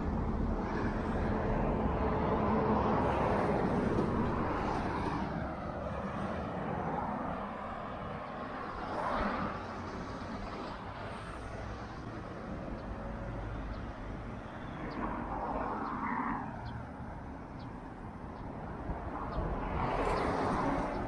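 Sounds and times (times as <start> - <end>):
cars passing: 0.0 - 21.0
steady traffic hum: 0.0 - 21.0.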